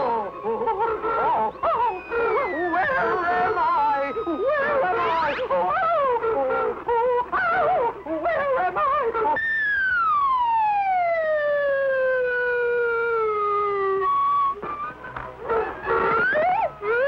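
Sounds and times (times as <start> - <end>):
falling-pitch whistle: 1.2 - 5.5, 9.4 - 17.0
warbling whistle effect: 1.5 - 5.5, 9.4 - 11.0.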